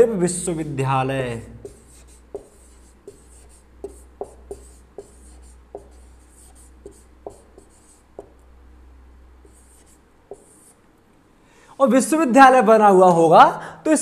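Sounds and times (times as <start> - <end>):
marker scratching strokes: 1.6 - 8.4, 9.4 - 10.8
marker tapping on whiteboard: 1.6 - 8.4, 9.4 - 10.7.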